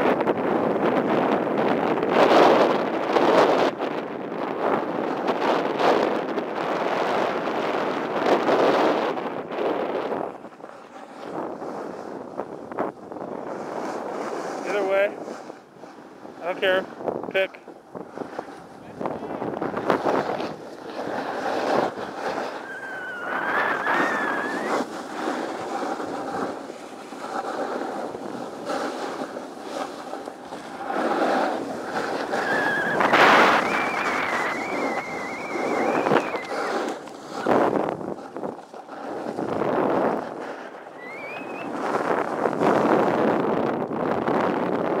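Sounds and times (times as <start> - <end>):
wind buffeting microphone: 0.0 - 45.0
ski edges scraping on snow: 4.9 - 45.0
thin wavering squealing tones: 22.5 - 24.8, 32.3 - 36.7, 40.9 - 41.7.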